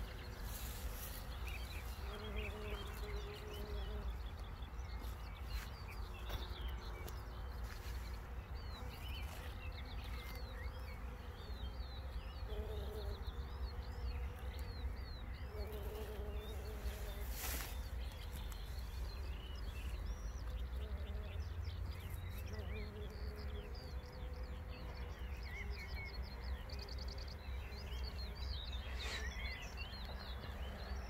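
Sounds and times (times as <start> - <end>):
bumblebee buzzing: 0.0 - 4.2, 8.1 - 14.7, 15.4 - 18.5, 20.6 - 25.1
small birds chirping: 0.0 - 31.0.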